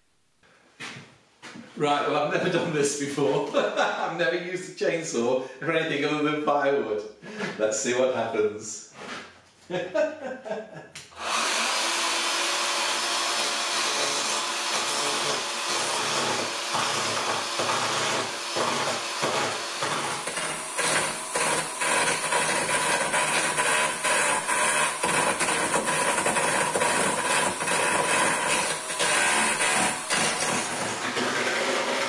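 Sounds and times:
electric chainsaw cutting wood: 11.1s - 32.0s.

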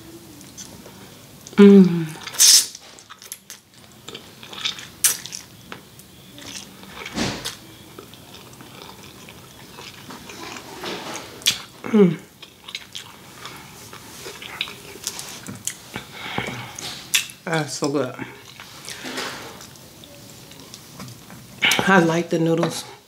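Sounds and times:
person eating noodles: 1.5s - 5.4s, 6.4s - 17.4s.

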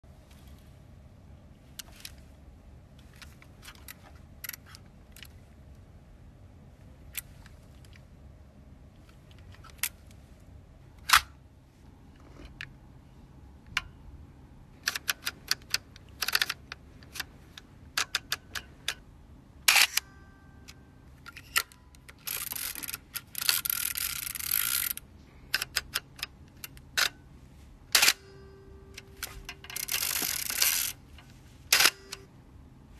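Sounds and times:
small camera mechanical clicks: 14.8s - 19.0s, 19.7s - 27.2s, 27.9s - 32.3s
film-advance crank ratcheting: 19.7s - 20.2s, 21.3s - 27.2s, 27.9s - 32.3s.

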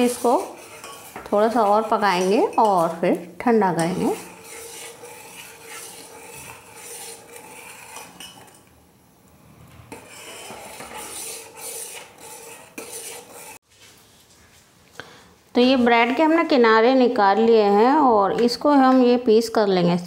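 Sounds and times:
spoon scraping inside steel pot: 0.0s - 8.7s, 9.4s - 13.6s.

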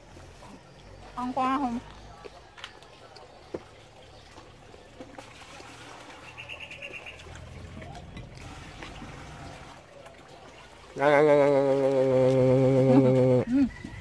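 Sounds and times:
bird trill: 6.3s - 7.3s
person humming mmm: 11.0s - 13.7s.

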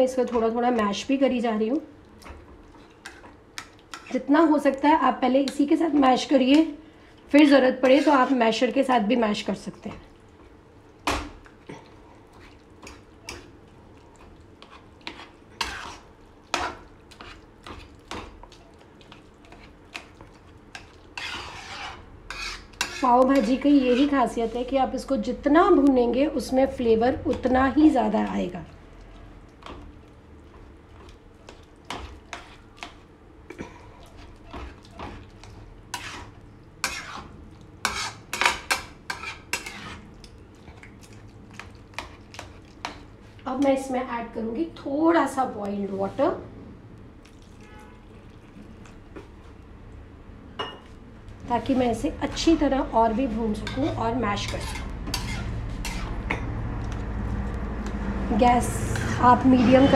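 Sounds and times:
metal spatula scraping a pan: 7.8s - 8.4s, 14.6s - 17.4s, 20.7s - 24.7s, 31.9s - 33.0s, 34.1s - 40.1s, 51.7s - 56.5s.

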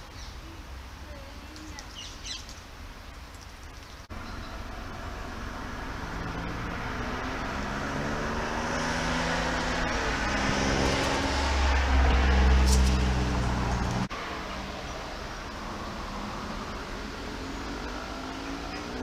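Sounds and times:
vehicle engine passing by: 4.1s - 19.0s.

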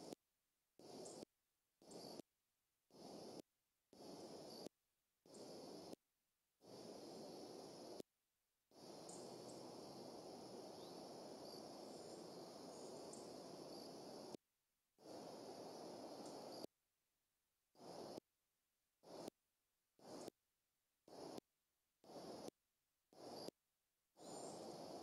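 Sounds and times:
faint outdoor hiss: 0.8s - 1.2s, 1.8s - 2.2s, 2.9s - 3.4s, 4.0s - 4.7s, 5.3s - 6.0s, 6.6s - 8.0s, 8.7s - 14.4s, 15.0s - 16.7s, 17.8s - 18.2s, 19.0s - 19.3s, 20.0s - 20.3s, 21.1s - 21.4s, 22.0s - 22.5s, 23.1s - 23.5s, 24.2s - 25.0s
faint high-pitched chirps: 0.8s - 2.2s, 4.0s - 6.0s, 8.8s - 14.4s, 15.0s - 16.7s, 24.2s - 25.0s.

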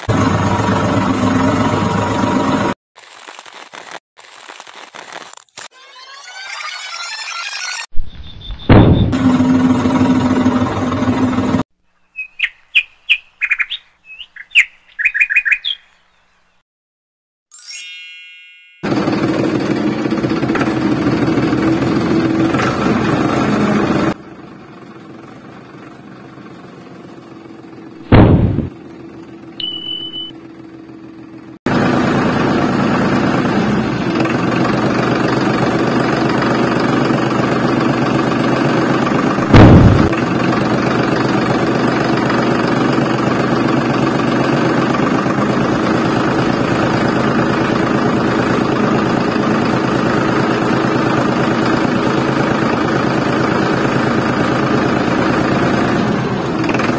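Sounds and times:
motor running steadily: 0.0s - 2.7s, 9.2s - 11.6s, 18.9s - 56.9s
sudden loud bangs: 8.6s - 9.2s, 28.1s - 28.8s, 39.5s - 40.2s.

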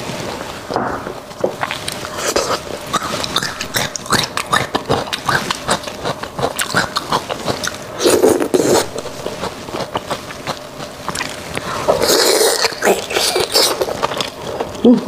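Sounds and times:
wet chewing and lip smacks: 1.6s - 7.9s
slurping from a bone: 1.7s - 14.7s.

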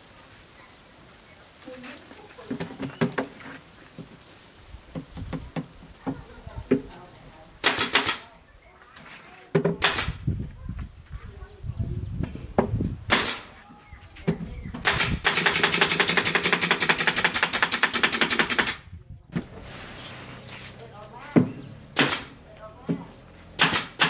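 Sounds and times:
nail gun firing: 7.6s - 8.2s, 9.8s - 10.2s, 13.1s - 13.5s, 14.8s - 18.8s, 22.0s - 22.4s, 23.6s - 24.0s.

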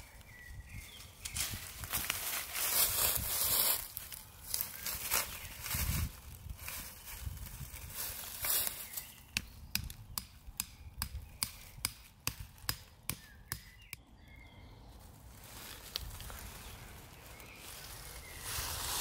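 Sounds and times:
hammer knocking wooden stake: 9.3s - 14.0s.

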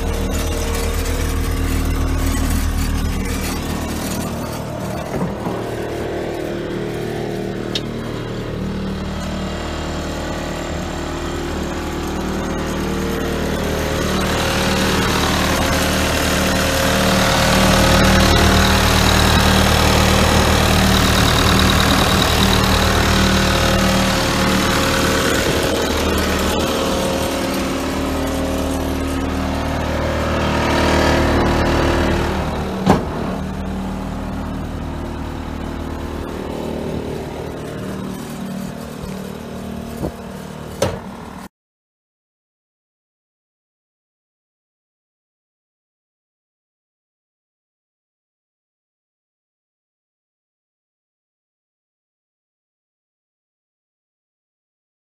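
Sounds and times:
diesel engine running: 0.0s - 41.5s.

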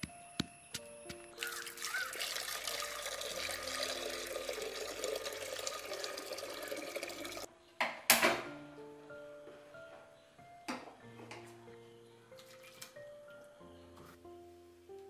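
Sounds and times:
water pouring into clay pot: 1.4s - 7.5s.

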